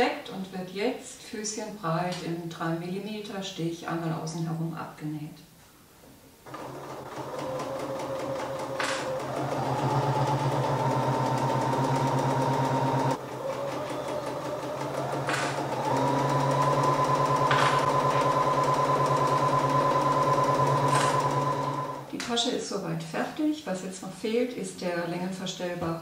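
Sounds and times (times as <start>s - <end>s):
sewing machine stitching: 6.5s - 22.3s.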